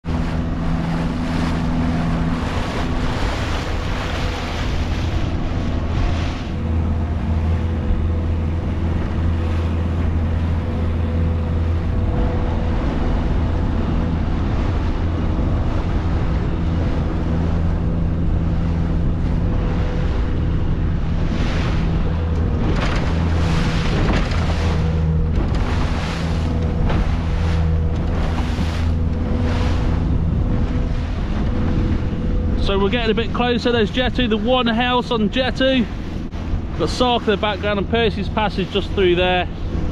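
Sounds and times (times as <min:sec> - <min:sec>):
motorboat engine humming: 0:00.0 - 0:39.9
water rushing past hull: 0:00.0 - 0:39.9
wind on microphone: 0:00.0 - 0:39.9
bow slapping into waves: 0:21.0 - 0:32.2.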